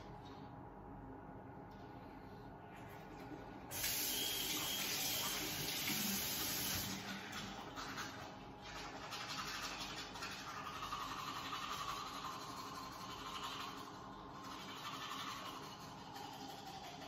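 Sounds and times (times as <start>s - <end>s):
toothbrush scrubbing teeth: 5.3s - 17.0s.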